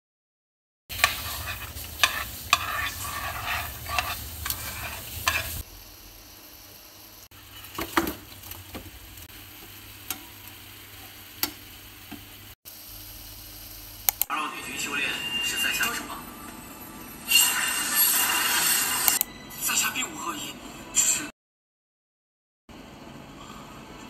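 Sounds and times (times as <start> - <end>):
metal spoon scraping a pan: 0.9 - 5.6
food frying in oil: 0.9 - 14.1.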